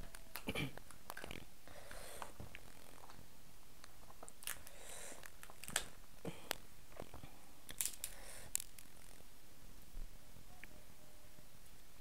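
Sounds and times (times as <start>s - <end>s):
crab shell cracking: 4.2s - 5.9s.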